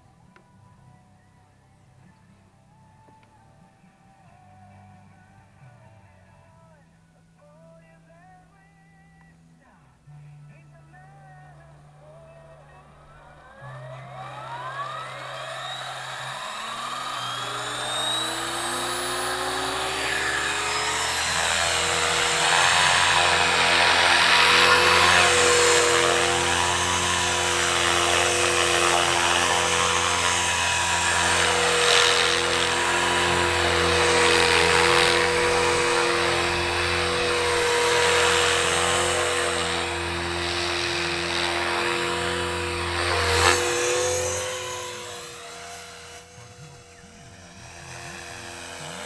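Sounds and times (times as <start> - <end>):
electric motor whine: 11.0 - 49.0
rotor blade noise: 11.6 - 49.0.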